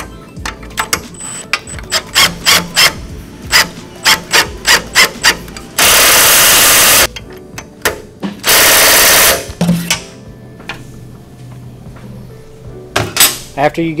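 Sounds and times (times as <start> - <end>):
power tool spinning: 5.8 - 7.1.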